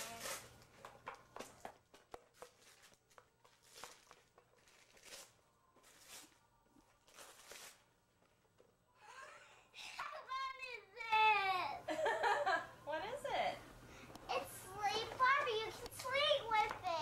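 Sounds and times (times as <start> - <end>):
wrapping paper tearing: 0.0 - 0.6, 3.6 - 8.0.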